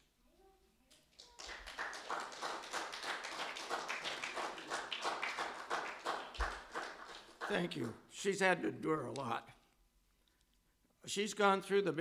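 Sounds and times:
congregation applauding: 1.2 - 8.0.

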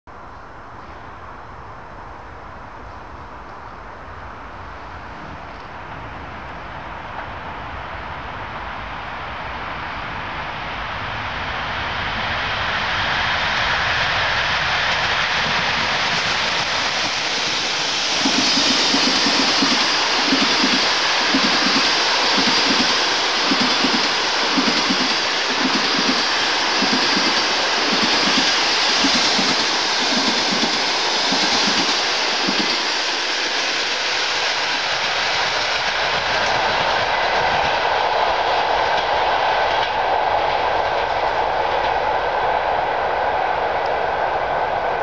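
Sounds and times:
electric locomotive rumbling past: 0.3 - 45.0
train wheel clatter: 13.2 - 42.3.

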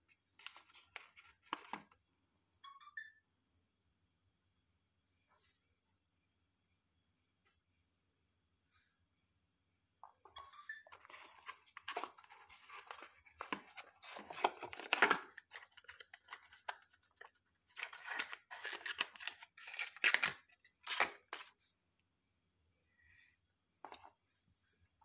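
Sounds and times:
packaging rustling and scraping: 10.9 - 21.5.

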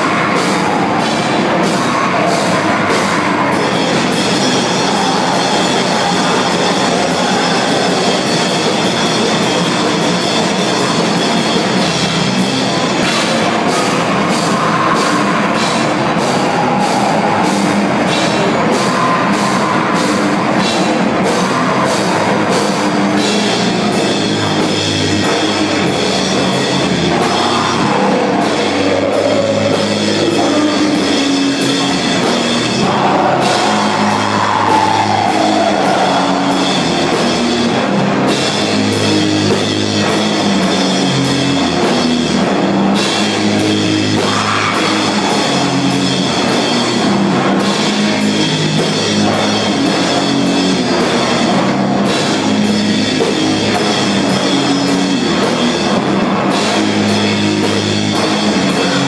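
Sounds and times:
bass line: 0.0 - 59.0
drum kit: 0.0 - 59.0.

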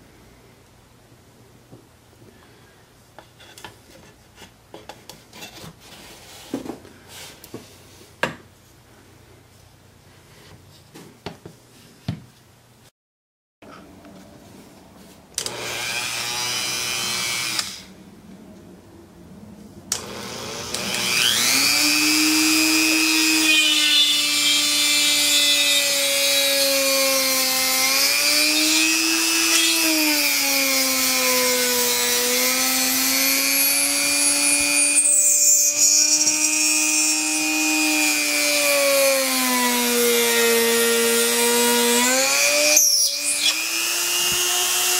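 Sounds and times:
rotary tool drilling into wood: 15.4 - 17.9, 19.9 - 44.9.

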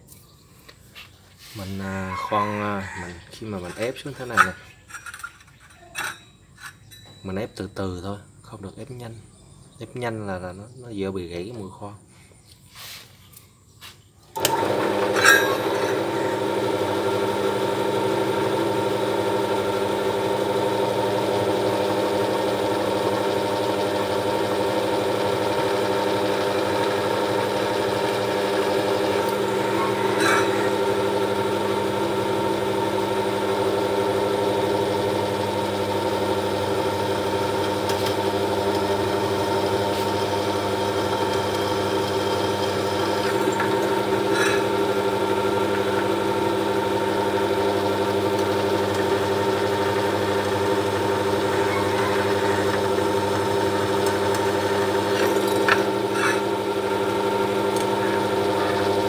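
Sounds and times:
electric drill humming: 14.4 - 59.0.

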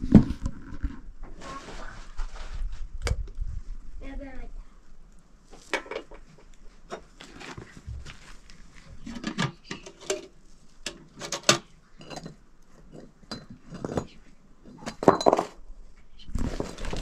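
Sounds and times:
utensils clinking against dishes: 11.2 - 14.2.

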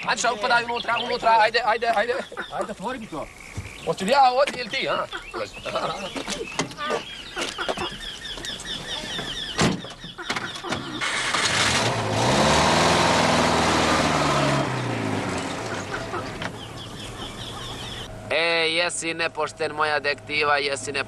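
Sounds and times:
car engine starting and driving off: 10.7 - 18.4.

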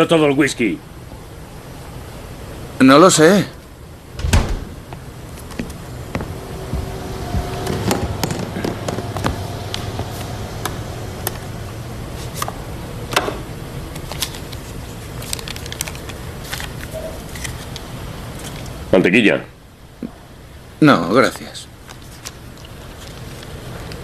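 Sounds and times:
low hum: 3.6 - 15.8.

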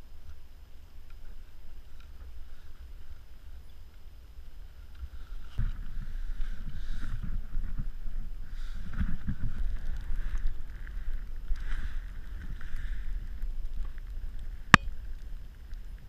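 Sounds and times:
wind buffeting microphone: 5.6 - 16.0.

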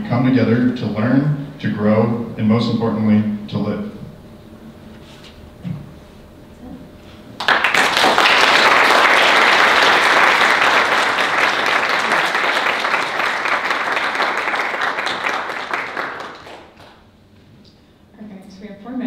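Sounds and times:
audience applauding: 7.4 - 17.0.

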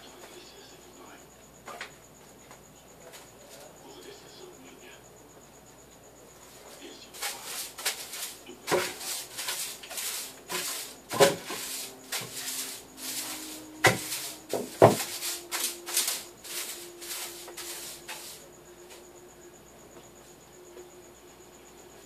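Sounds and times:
broom bristles swishing: 6.6 - 18.4.

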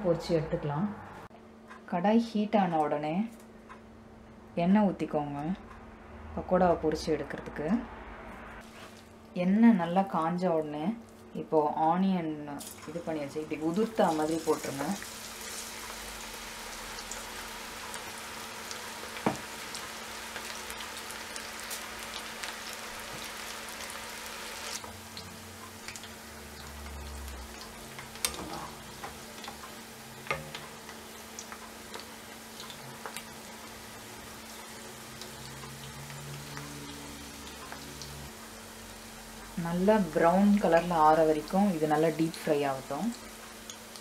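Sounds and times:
fritters sizzling in oil: 12.6 - 44.0.

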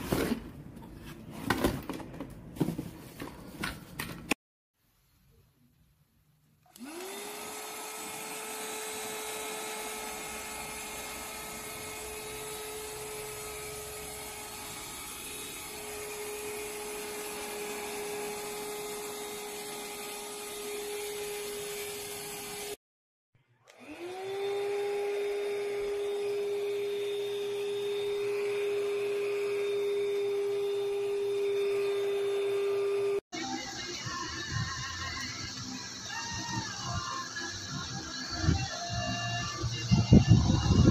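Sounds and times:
handheld vacuum motor whining: 6.7 - 22.8, 23.6 - 33.2, 34.0 - 40.9.

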